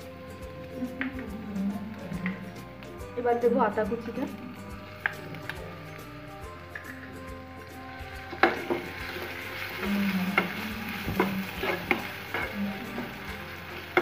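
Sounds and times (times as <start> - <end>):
garlic sizzling in oil: 0.0 - 14.0
spoon scraping pan: 8.0 - 14.0.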